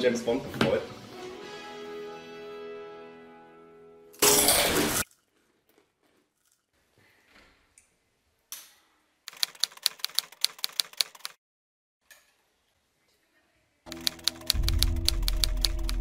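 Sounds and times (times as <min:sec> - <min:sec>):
typewriter keys clacking: 0:09.3 - 0:11.4, 0:13.9 - 0:16.0.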